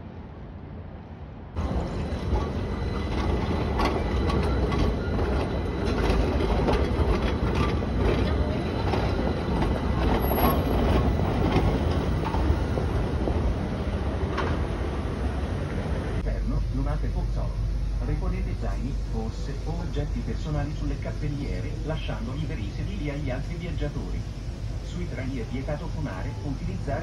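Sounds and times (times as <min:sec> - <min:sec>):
tram wheel squeals: 0:01.6 - 0:15.0
tram wheels clattering on rails: 0:01.6 - 0:16.2.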